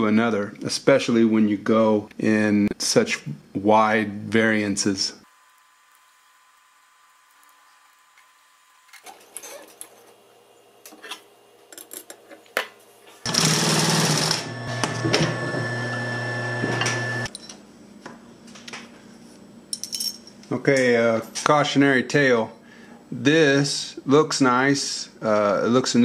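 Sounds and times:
sewing machine running: 13.3 - 17.3.

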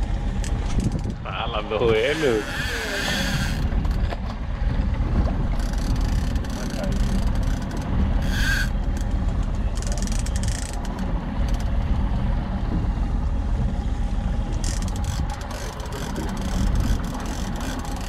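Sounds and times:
low rumble of wind: 0.0 - 18.0
fishing reel buzzing and clicking: 2.1 - 4.1, 5.6 - 9.1, 9.7 - 11.7, 14.5 - 18.0.

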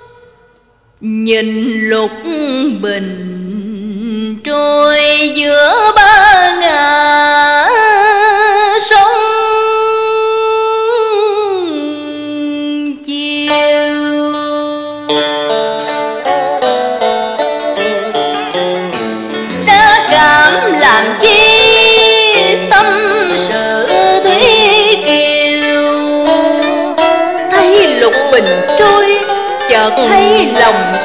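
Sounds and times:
woman singing with vibrato: 0.0 - 15.3, 19.5 - 31.0
plucked-string notes: 11.9 - 31.0
traditional ensemble playing: 15.4 - 31.0.

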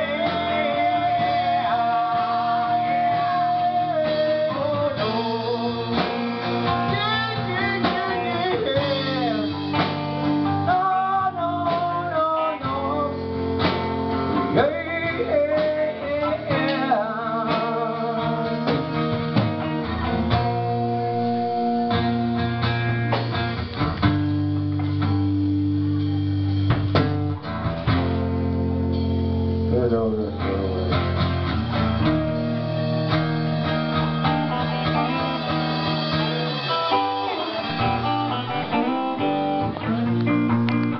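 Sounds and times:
person singing: 0.0 - 13.4, 14.1 - 19.2, 19.8 - 22.4, 33.1 - 40.9
acoustic guitar strumming: 0.0 - 40.9.

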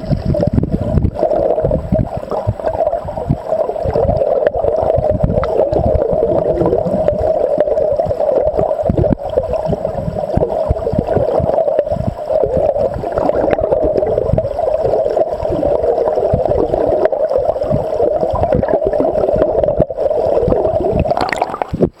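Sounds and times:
low underwater thuds: 0.0 - 22.0
underwater river gurgling rush: 0.0 - 22.0.

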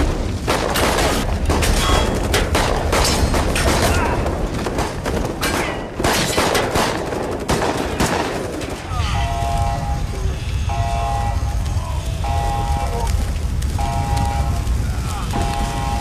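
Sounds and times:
rapid gunshots: 0.0 - 8.9
crashing metal impacts: 0.0 - 9.9.

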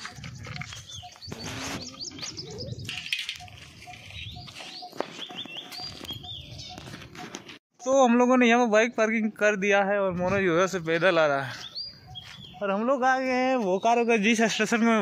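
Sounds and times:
birds chirping and whistling: 0.0 - 7.6, 11.2 - 15.0.

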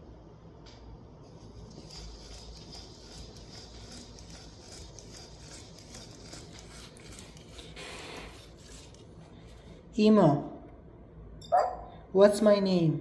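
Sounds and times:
small servo motors whirring: 1.5 - 9.1.

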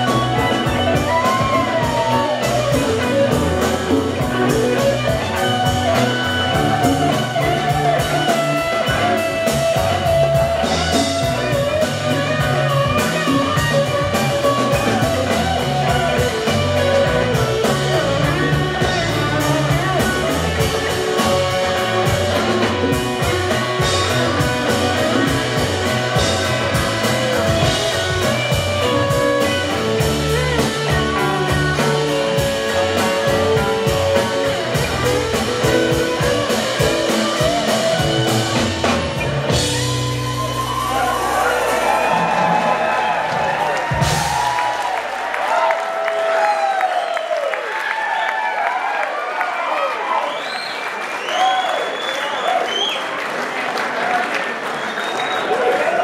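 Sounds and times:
lead guitar bent notes: 0.0 - 42.4
live rock band: 0.0 - 56.0.

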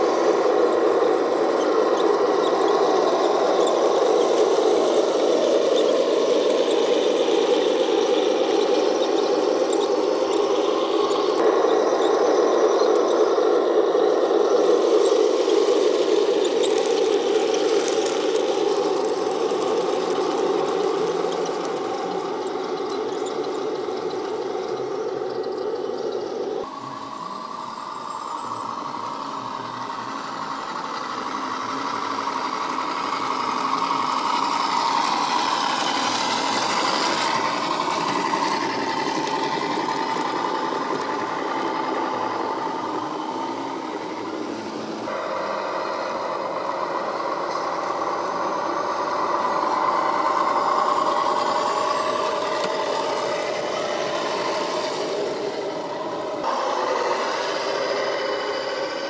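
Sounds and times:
model truck diesel engine drone: 0.0 - 59.0.

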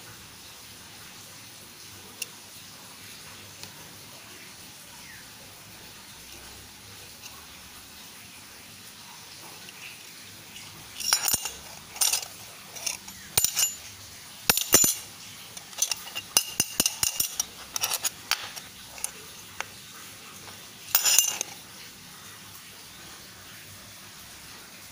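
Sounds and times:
metal medals clinking: 10.5 - 19.6, 20.4 - 21.6.

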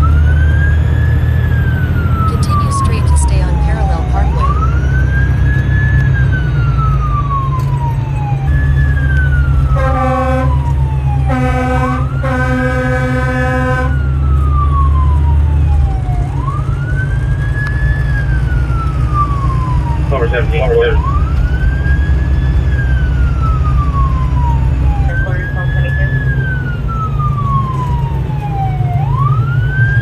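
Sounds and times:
fire truck siren: 0.0 - 30.0
truck engine rumble: 0.0 - 30.0
air horn blasts: 9.7 - 14.0.

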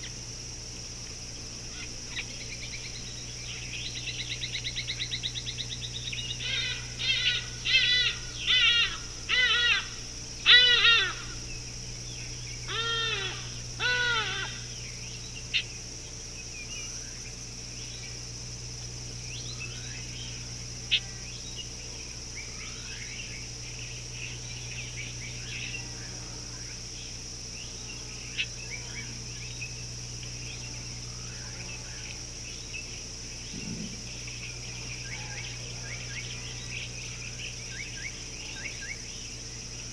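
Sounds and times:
faint bird chirps: 16.4 - 18.2.

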